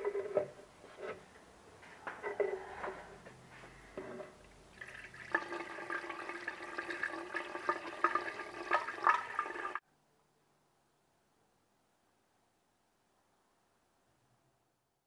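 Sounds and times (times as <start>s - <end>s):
coolant pouring and gurgling: 4.7s - 9.8s.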